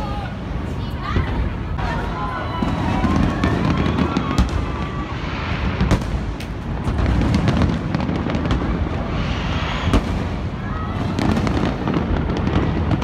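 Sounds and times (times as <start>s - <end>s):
sharp firework cracks: 2.6s - 13.0s
rumble of booming firework shells: 2.7s - 13.0s.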